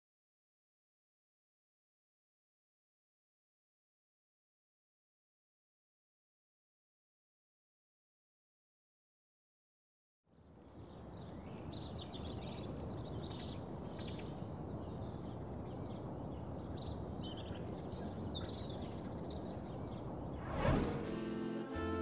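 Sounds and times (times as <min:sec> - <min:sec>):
small birds chirping: 0:10.3 - 0:20.4
loud whoosh: 0:20.3 - 0:21.7.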